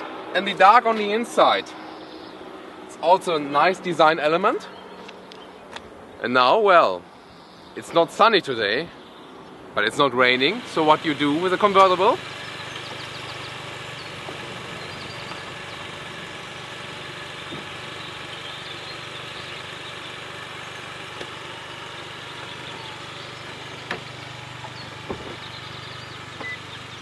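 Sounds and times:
motor hum: 0:10.0 - 0:27.0.

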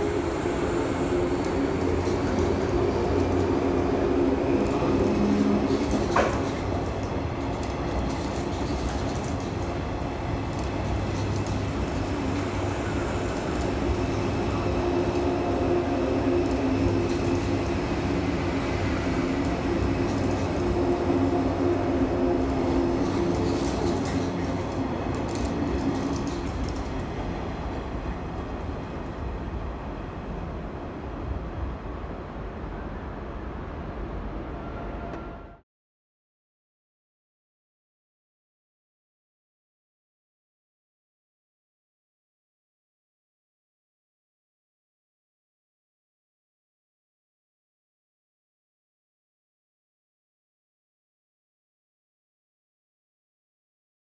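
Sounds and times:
electric train passing: 0:00.0 - 0:35.6
wheels rumbling on rail: 0:00.0 - 0:35.6.

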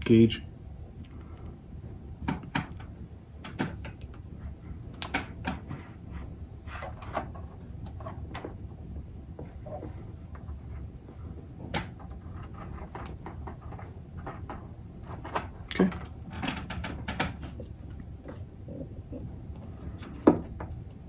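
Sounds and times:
low steady hum: 0:00.0 - 0:21.0
clicks and rustles of wire handling: 0:02.2 - 0:18.5.

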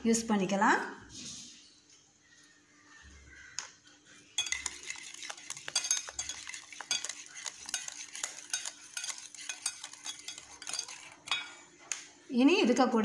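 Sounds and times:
whisk beating batter in metal bowl: 0:04.4 - 0:11.5.

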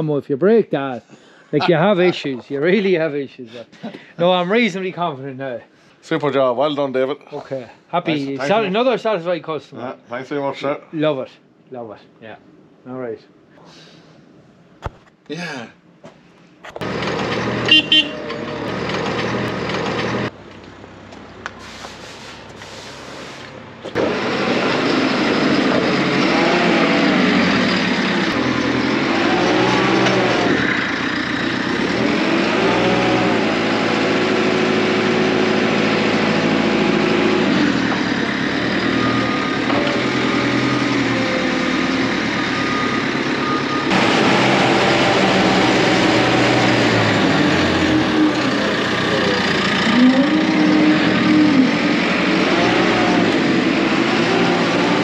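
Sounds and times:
diesel engine revving: 0:16.8 - 0:20.4, 0:21.6 - 0:55.0.

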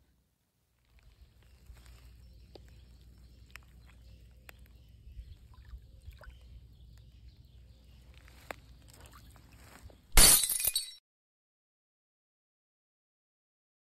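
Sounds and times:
water sloshing and splashing: 0:01.0 - 0:06.6, 0:08.0 - 0:09.8.

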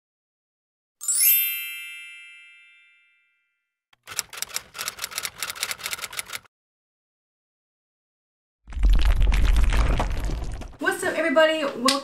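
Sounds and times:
bright chime: 0:01.0 - 0:03.6
keyboard typing clicks: 0:04.0 - 0:06.5.

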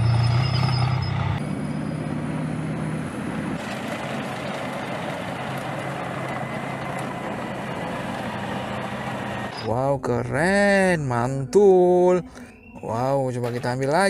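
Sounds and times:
tank engine running: 0:00.0 - 0:09.7
tank ploughing through water: 0:03.6 - 0:09.5.

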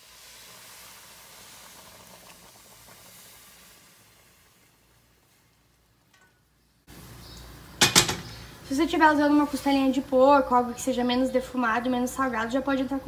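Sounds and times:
water poured into hot pot hissing: 0:00.0 - 0:05.8.

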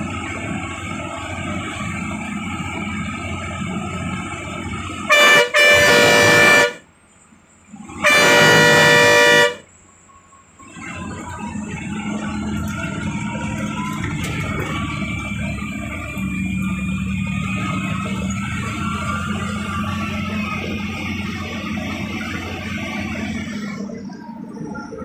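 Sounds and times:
engine and road noise: 0:00.0 - 0:25.0
bus horn blasts: 0:05.0 - 0:07.0, 0:07.8 - 0:09.8.

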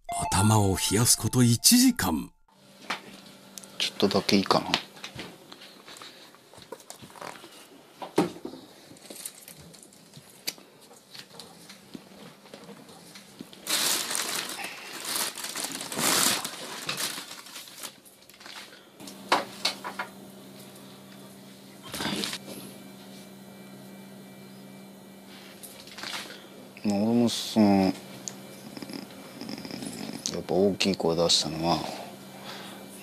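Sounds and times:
faint steady hum: 0:02.6 - 0:33.0
loud rustling and crinkling: 0:08.7 - 0:18.9.

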